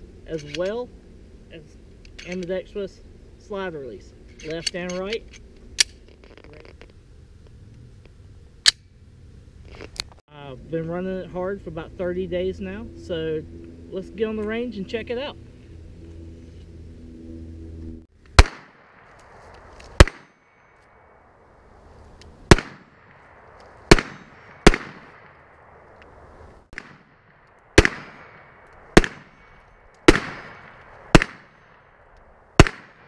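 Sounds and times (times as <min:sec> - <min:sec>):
handgun shots echoing: 0:18.4 - 0:19.1, 0:19.9 - 0:20.4, 0:22.5 - 0:23.2, 0:23.9 - 0:25.4, 0:27.8 - 0:31.6, 0:32.6 - 0:33.0.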